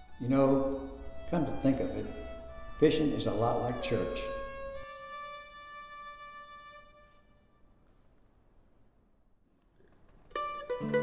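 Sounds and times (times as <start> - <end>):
plucked string music: 10.3 - 11.0.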